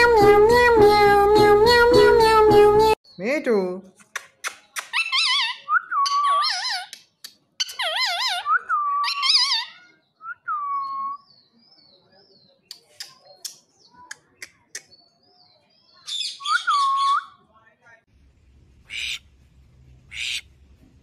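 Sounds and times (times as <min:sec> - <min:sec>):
parakeet calling: 0:18.8 - 0:19.2, 0:20.1 - 0:20.5.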